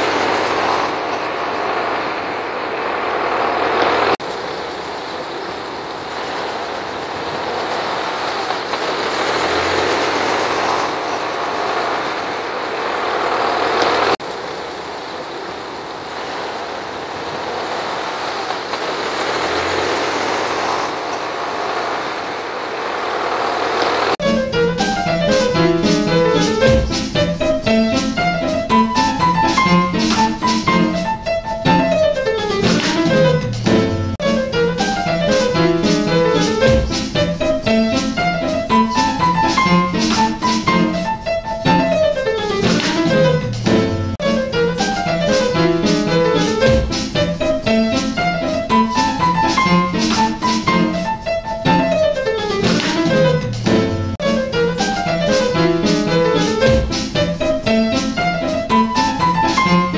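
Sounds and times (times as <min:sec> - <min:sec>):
piano notes: 0:24.2 - 0:59.9.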